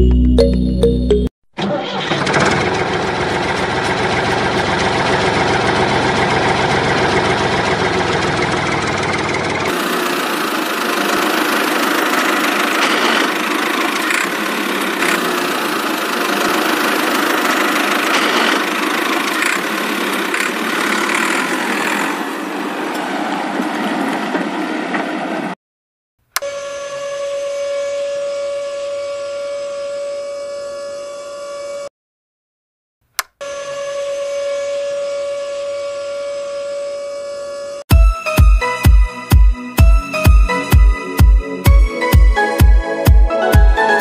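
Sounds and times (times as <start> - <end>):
engine running: 1.6 - 24.6
short clicks: 33.1 - 33.4.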